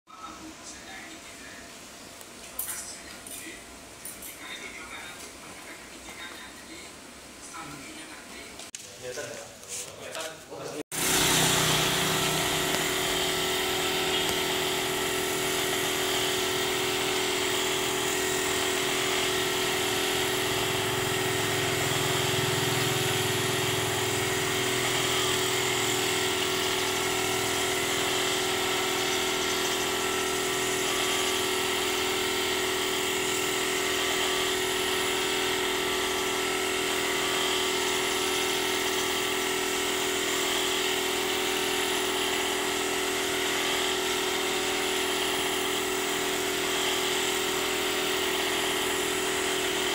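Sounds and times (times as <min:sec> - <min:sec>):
air compressor humming: 0:00.2 - 0:49.9
spray gun hissing: 0:10.9 - 0:49.9.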